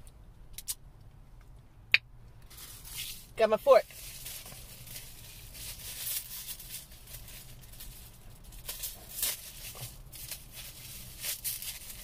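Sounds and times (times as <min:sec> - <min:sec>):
plastic wrapper crinkling and tearing: 0:02.5 - 0:12.0.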